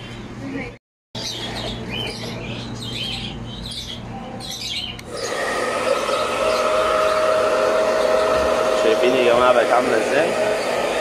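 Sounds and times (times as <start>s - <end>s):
hair dryer whining: 5.0s - 11.0s.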